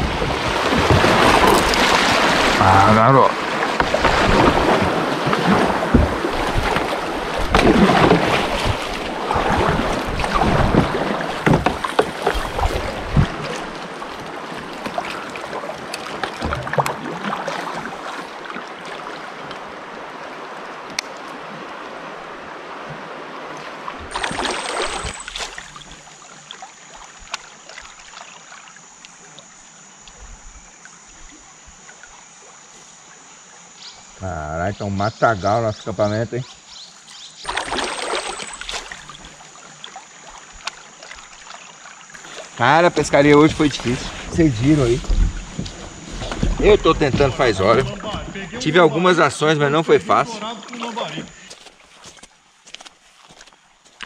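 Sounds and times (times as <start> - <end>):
river water rushing and splashing: 0.0 - 34.1, 36.6 - 54.0
high-pitched insect drone: 24.1 - 36.7, 37.5 - 51.5.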